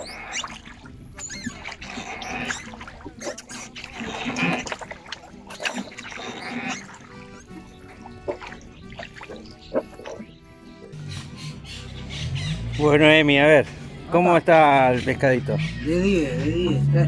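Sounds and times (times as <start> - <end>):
oar blades splashing water: 0.0 - 10.3
oars creaking in oarlocks: 0.0 - 12.8.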